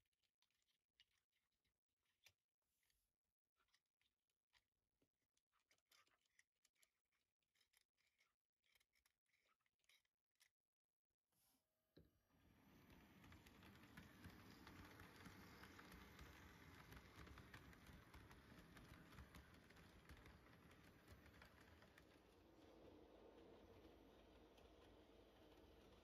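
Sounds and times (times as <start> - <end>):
model train wheels clicking on rails: 12.4 - 26.0.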